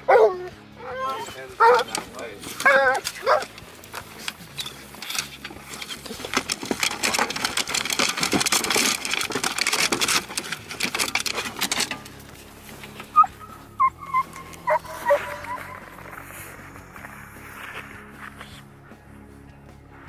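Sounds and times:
dog whining: 0.0 - 3.5, 13.1 - 16.2
dog claws clattering on metal: 0.9 - 12.3.

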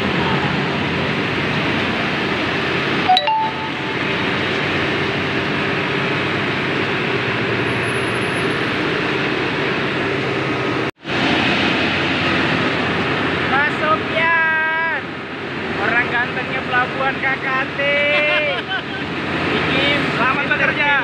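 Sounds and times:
diesel truck engine running: 4.0 - 14.4.

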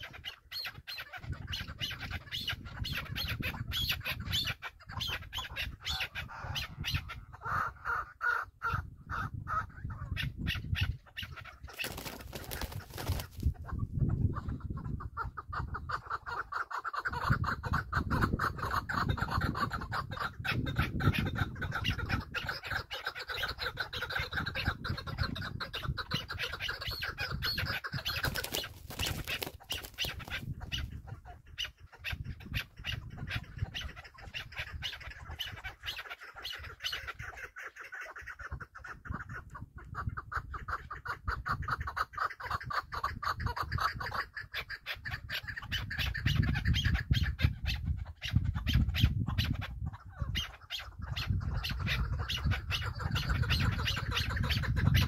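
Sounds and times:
partridge calling: 0.0 - 55.0.

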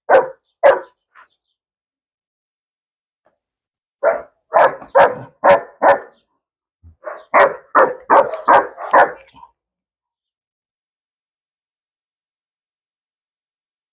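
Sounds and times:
dog barking: 0.1 - 1.0, 4.0 - 6.2, 7.0 - 9.5.

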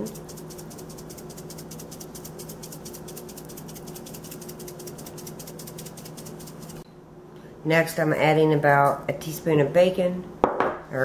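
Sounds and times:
shaker jar of dried herbs rattling: 0.0 - 6.8.

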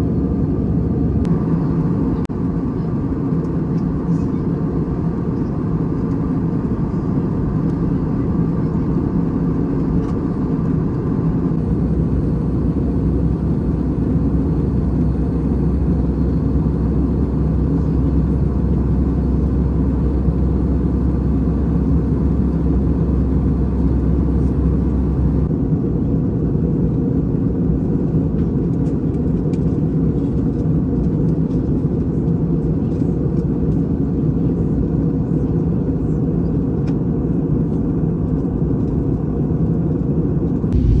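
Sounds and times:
airplane cabin engine rumble: 0.0 - 41.0
deeper hum: 40.5 - 41.0.

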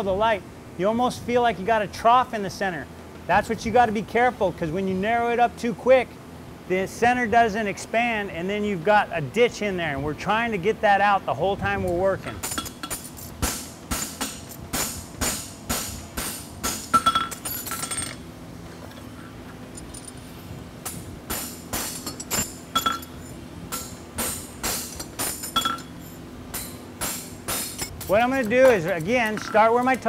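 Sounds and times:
hammer striking metal on anvil: 20.9 - 30.0.

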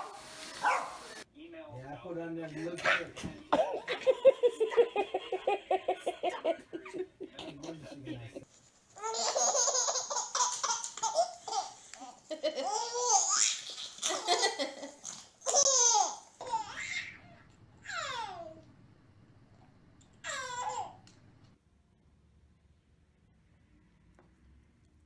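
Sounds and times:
baby laughing: 2.8 - 8.4, 9.0 - 18.6, 20.2 - 21.0
baby squealing: 15.5 - 18.5, 20.2 - 21.0.

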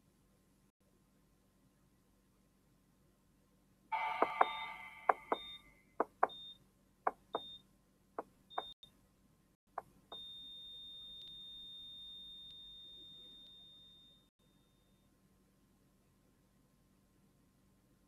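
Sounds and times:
flatline tone: 3.9 - 6.5.

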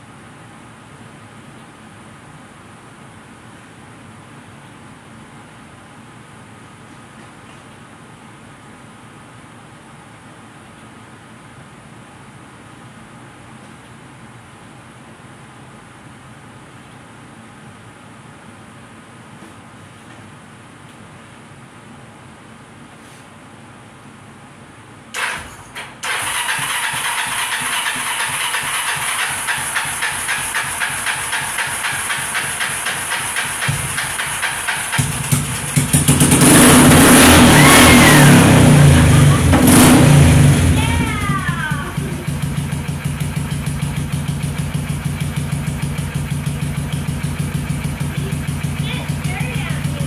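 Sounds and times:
quad engine starting and running: 25.2 - 50.0.

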